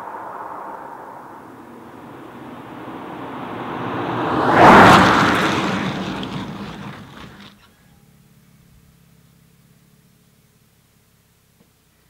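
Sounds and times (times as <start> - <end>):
car passing at speed: 0.0 - 7.7
car braking hard: 0.0 - 8.2.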